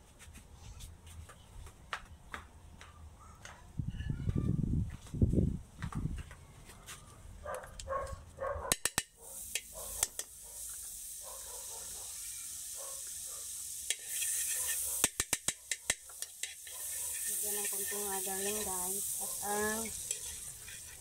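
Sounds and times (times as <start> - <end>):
spoon clicking against pan: 8.7 - 10.4, 13.9 - 18.7, 19.8 - 21.0
margarine sizzling in a wok: 8.8 - 21.0.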